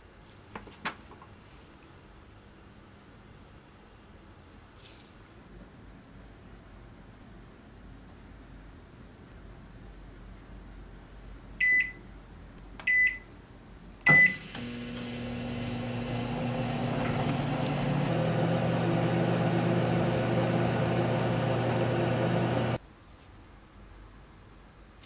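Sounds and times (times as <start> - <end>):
microwave keypad beeping: 11.6 - 12.0, 12.9 - 13.2, 14.1 - 14.6
microwave oven humming: 14.1 - 22.8.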